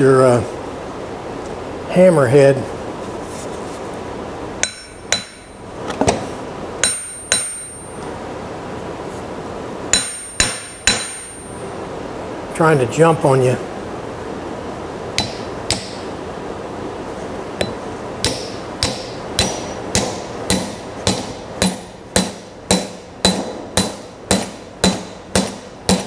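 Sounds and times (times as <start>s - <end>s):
hammer knocking wooden wedge: 9.9s - 11.2s, 17.6s - 26.0s.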